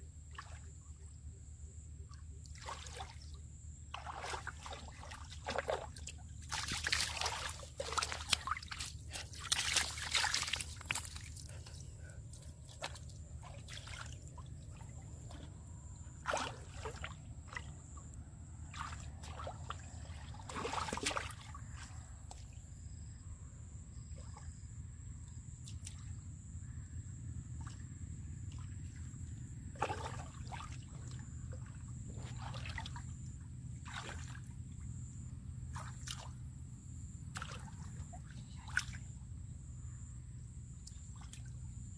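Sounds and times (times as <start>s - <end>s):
hands splashing in water: 3.9s - 11.5s, 20.4s - 21.6s
steady low rumble: 6.2s - 20.5s.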